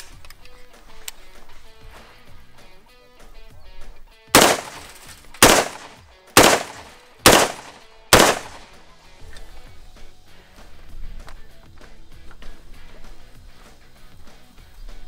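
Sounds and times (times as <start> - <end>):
rifle shots hitting metal plate: 4.4 - 8.7.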